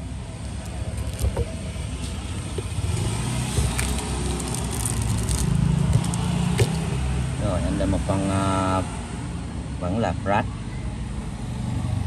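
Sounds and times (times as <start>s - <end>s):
vehicle engine: 0.0s - 9.6s
road traffic rumbling: 0.0s - 12.0s.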